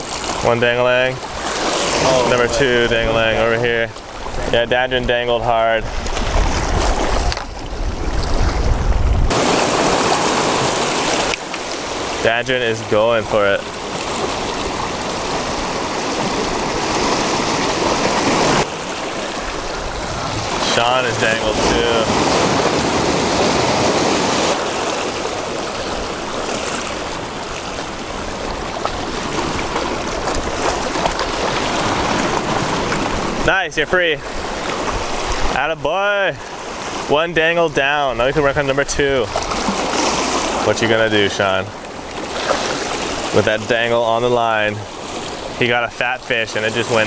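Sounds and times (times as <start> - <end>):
surf washing over rocks: 0.0 - 47.0
wind rumbling on microphone: 1.1 - 12.2, 13.6 - 35.6.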